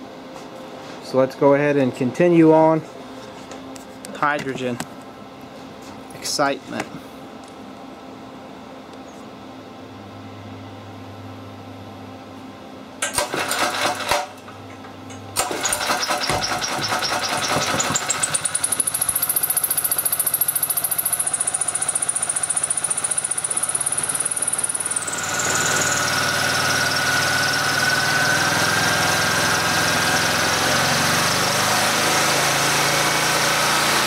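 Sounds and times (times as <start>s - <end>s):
small generator engine starting: 13.0s - 14.5s, 15.2s - 34.0s.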